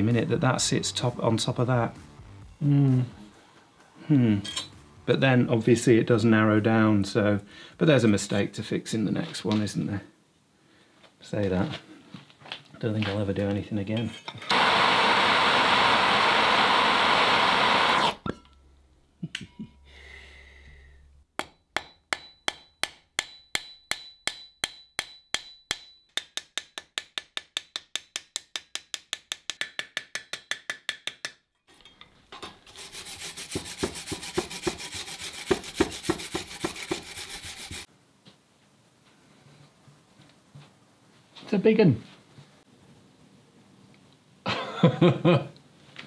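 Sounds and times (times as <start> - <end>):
hand rubbing on steel: 32.7 - 37.9.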